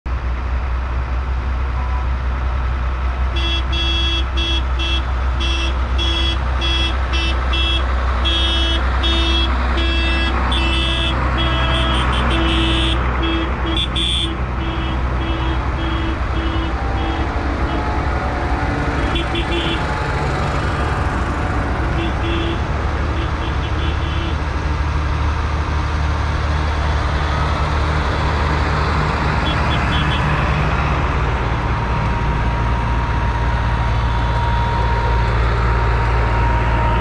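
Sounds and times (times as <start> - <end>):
tractor engines rumbling: 0.0 - 37.0
horn tooting: 3.3 - 24.5, 29.4 - 30.5.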